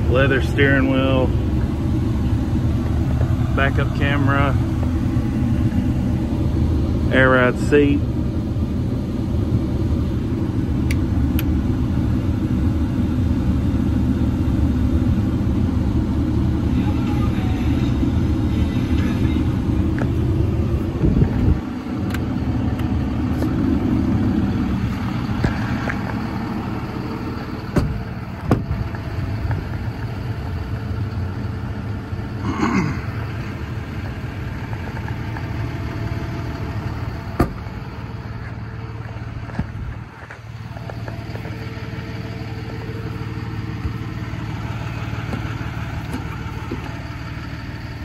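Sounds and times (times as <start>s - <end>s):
diesel engine idling: 0.0s - 48.0s
thump: 27.8s - 28.7s, 37.4s - 37.6s.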